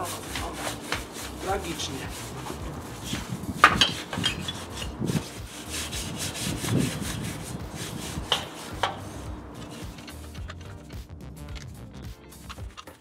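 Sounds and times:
hand scrubbing rubbing strokes: 0.0s - 10.5s
sharp knocks: 8.3s - 9.1s.

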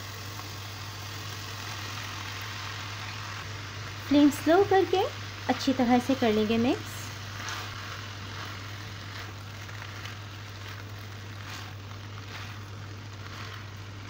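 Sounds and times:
food sizzling in a frying pan: 0.0s - 14.0s
steady low hum: 0.0s - 14.0s
spatula scraping a pan: 7.1s - 14.0s.

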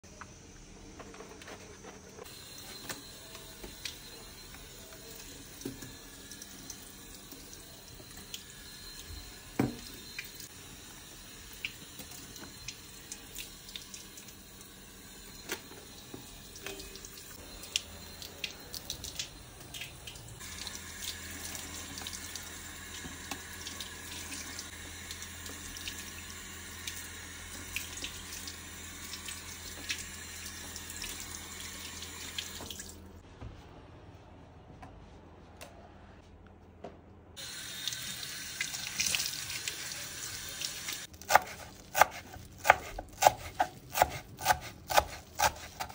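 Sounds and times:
tap water running into sink: 15.3s - 33.1s.

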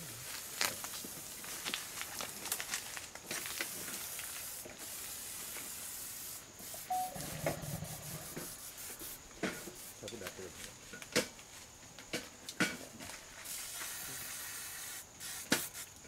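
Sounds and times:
aerosol spray hissing: 3.6s - 10.1s, 13.4s - 16.0s.

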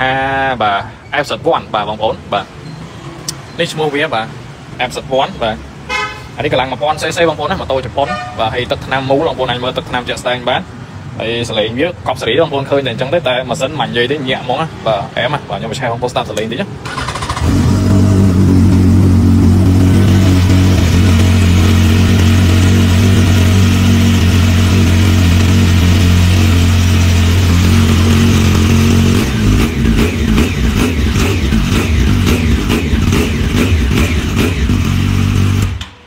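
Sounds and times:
motorcycle engine idling: 17.1s - 35.8s.

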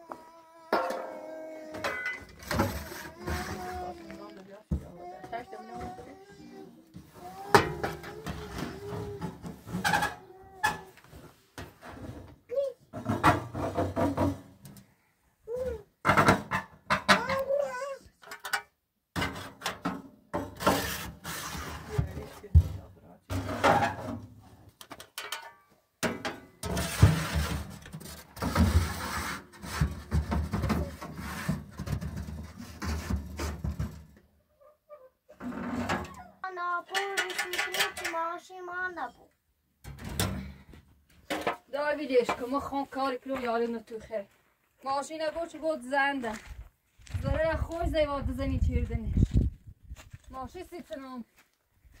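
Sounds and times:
metal clanks and scraping: 0.7s - 4.5s, 7.4s - 10.9s, 18.2s - 34.2s, 35.3s - 38.4s.

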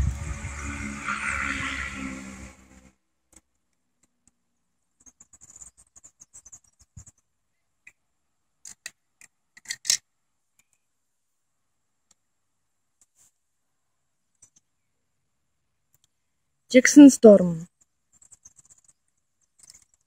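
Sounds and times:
toy car set on stone: 8.6s - 10.1s, 18.2s - 20.0s
toy car handled clicking: 8.6s - 10.7s, 19.6s - 20.0s.

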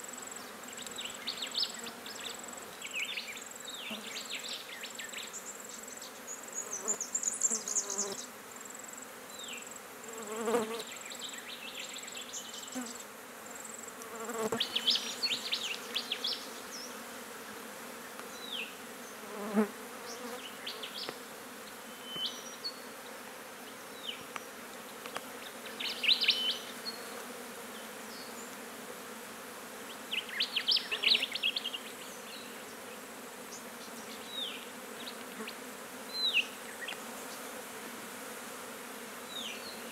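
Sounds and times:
flies buzzing: 0.0s - 39.9s.

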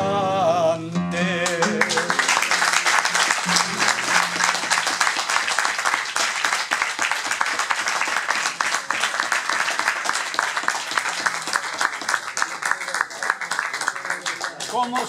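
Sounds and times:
guitar chord ringing: 1.0s - 4.9s
audience applauding: 1.4s - 15.0s.

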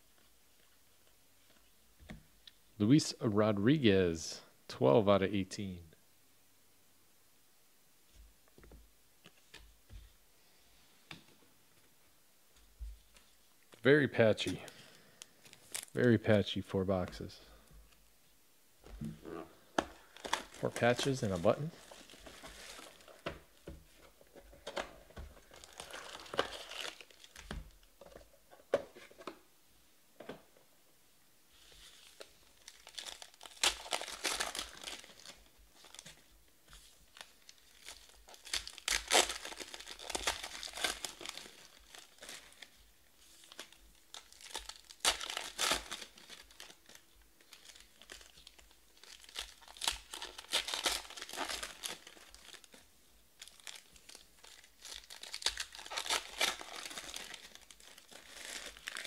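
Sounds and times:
plastic wrapping crinkling and tearing: 14.4s - 16.1s, 19.0s - 23.6s, 24.6s - 27.9s, 31.8s - 59.0s.

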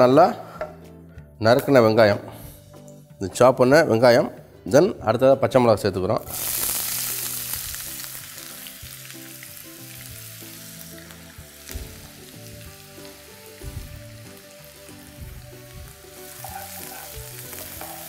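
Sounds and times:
onions sizzling in hot oil: 6.3s - 18.0s.

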